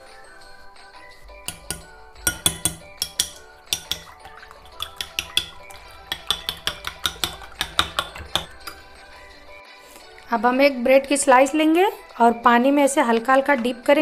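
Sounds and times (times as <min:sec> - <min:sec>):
background music: 0:00.0 - 0:14.0
spoon clinking against glass bowl: 0:01.4 - 0:09.5.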